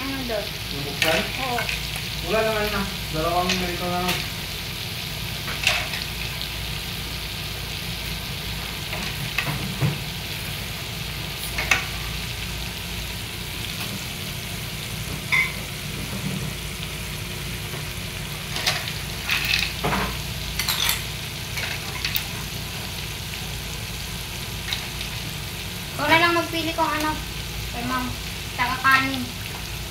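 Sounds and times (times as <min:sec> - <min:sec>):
pot simmering with bubbling hiss: 0:00.0 - 0:29.9.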